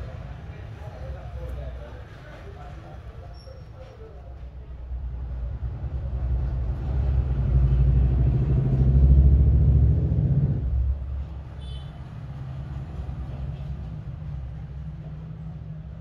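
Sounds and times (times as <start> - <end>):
low engine-like rumble: 4.2 - 16.0.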